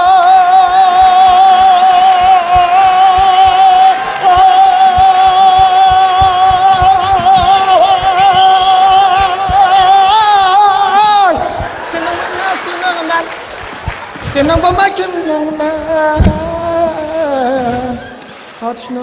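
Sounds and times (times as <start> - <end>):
man singing high vibrato note: 0.0 - 11.5
low rhythmic beat: 0.0 - 17.5.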